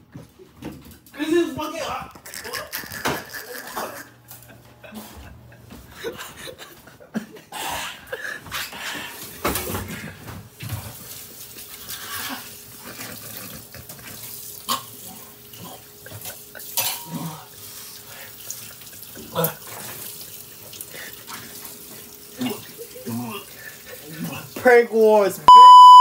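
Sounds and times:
tap water running into a sink: 10.6s - 25.3s.

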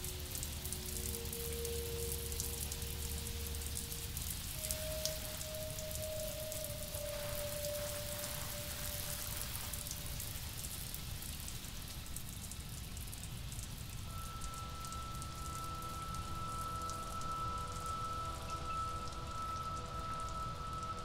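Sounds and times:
sustained chord of held tones: 0.0s - 10.6s, 14.0s - 21.0s
steady rain: 0.0s - 21.0s
single held tone: 14.1s - 21.0s.

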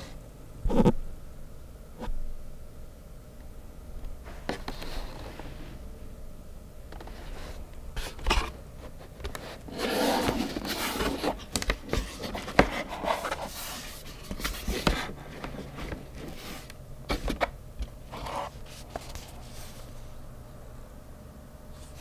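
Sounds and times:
rustling and scraping of card and paper: 4.2s - 5.8s, 6.9s - 20.2s, 21.7s - 22.0s.

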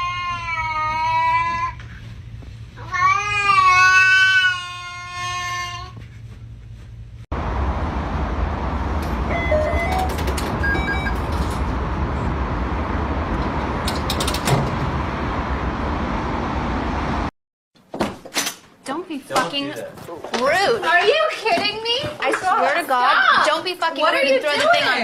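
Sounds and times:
road traffic rumble: 7.3s - 17.3s.

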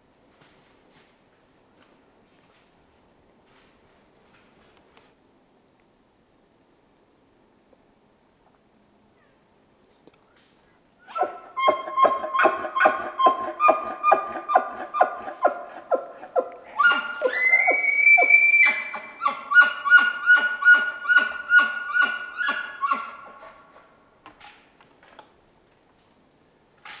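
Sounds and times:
elk high rising whistle: 16.8s - 18.9s.

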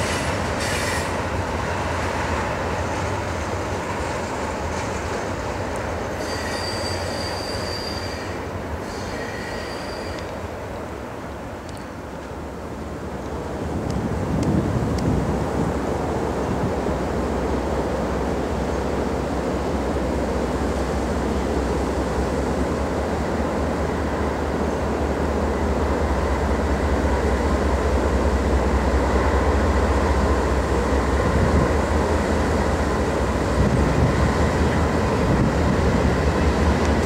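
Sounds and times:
locomotive engines rumbling: 9.8s - 37.0s
wind noise on microphone: 13.3s - 17.2s, 31.0s - 37.0s.

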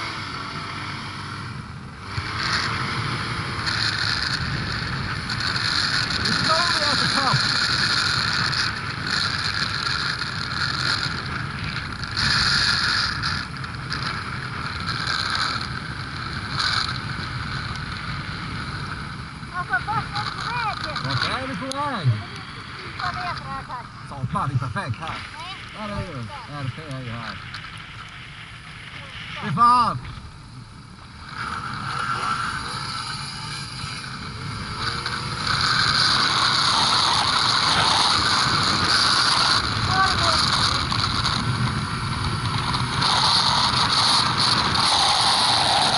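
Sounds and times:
snowmobile engine running: 0.0s - 45.9s
wind rushing over microphone: 0.0s - 45.9s.

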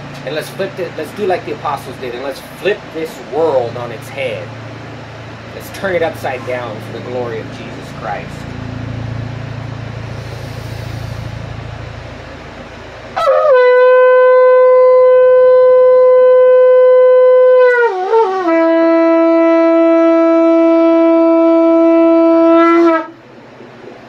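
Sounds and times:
shofar blast: 13.2s - 23.2s.

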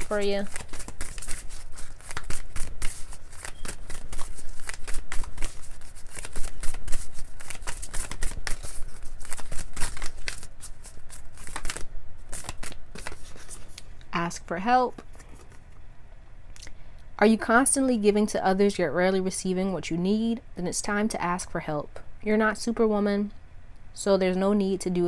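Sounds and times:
cards being shuffled: 0.0s - 13.9s.

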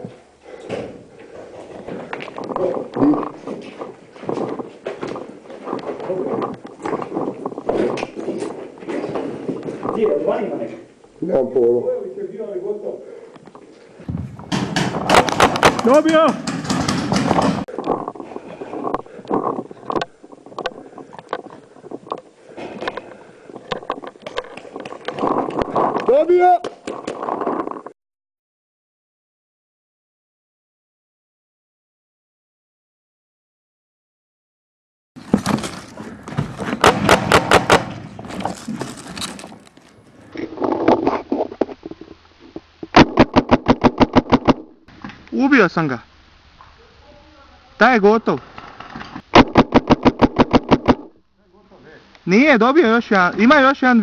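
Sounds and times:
paintball markers firing: 14.1s - 17.6s, 36.6s - 38.2s, 49.4s - 51.1s
sharp clicks and knocks: 14.1s - 18.0s
rustling in undergrowth: 35.2s - 36.9s, 38.0s - 42.9s.

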